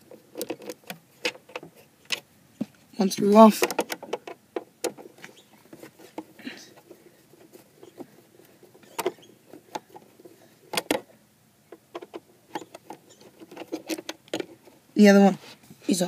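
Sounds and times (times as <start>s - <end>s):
screwdriver clicking and scraping: 12.0s - 14.8s.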